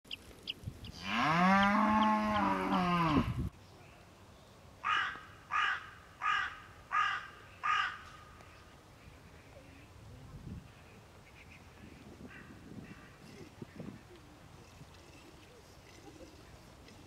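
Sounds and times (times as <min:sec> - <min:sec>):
cow mooing: 0:01.0 - 0:03.4
crow cawing: 0:04.8 - 0:08.1.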